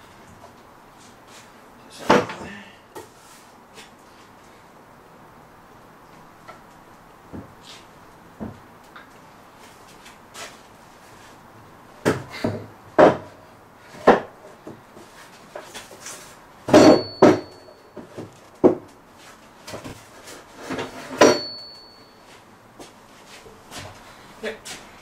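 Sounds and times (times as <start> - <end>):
wooden boards knocking: 12.0 - 13.4, 14.0 - 14.8, 16.7 - 18.9
brief metallic ring: 21.2 - 22.2.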